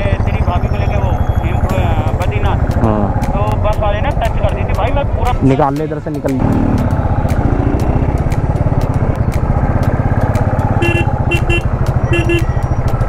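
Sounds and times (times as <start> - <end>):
horn beeps: 10.8 - 12.9.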